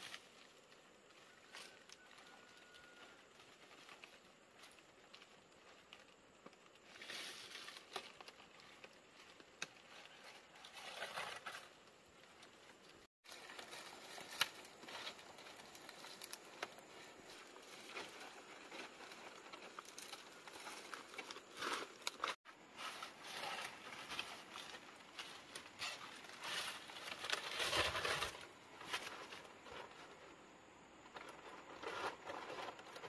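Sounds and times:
dry leaves rustling and crackling: 6.8 - 11.7, 13.2 - 29.4.

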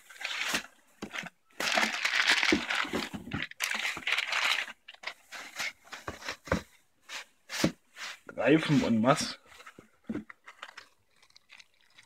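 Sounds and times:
plastic bag crinkling: 0.0 - 5.3, 10.3 - 12.0.

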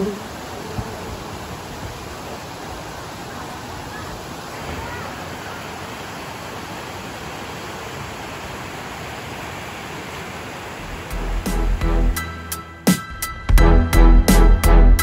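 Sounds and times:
water rushing over rocks: 0.0 - 12.0
music with heavy bass hits: 10.8 - 15.0.

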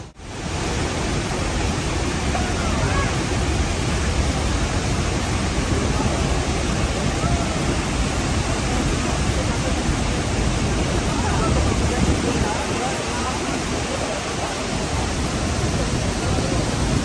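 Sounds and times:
waterfall rushing: 0.0 - 17.0.

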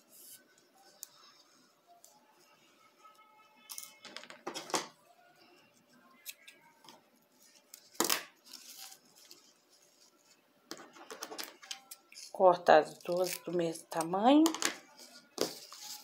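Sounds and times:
ribbon rustling: 7.2 - 14.0, 14.9 - 16.0.

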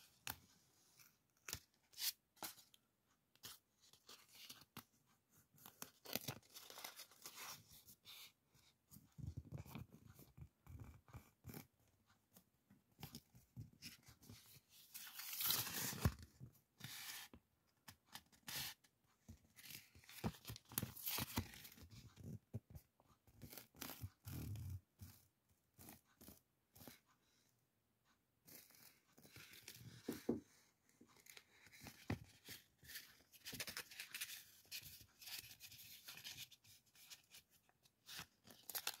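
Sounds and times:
paper rustling and crinkling: 31.1 - 39.0.

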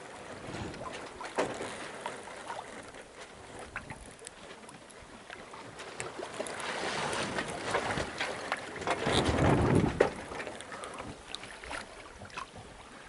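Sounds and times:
water splashing along hull: 0.0 - 13.0
wind buffeting microphone: 8.8 - 10.4.

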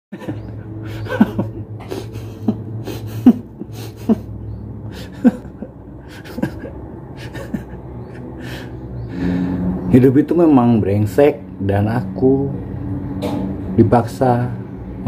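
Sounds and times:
man chuckling: 0.1 - 8.8
steady low hum: 0.1 - 15.0.

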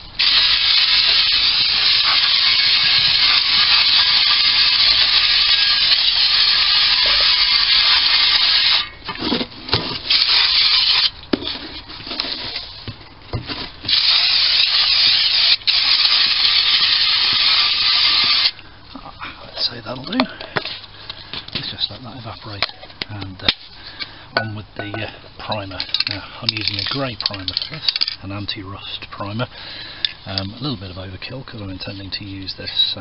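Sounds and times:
aerosol can spraying hiss: 0.2 - 8.8, 13.9 - 18.5.

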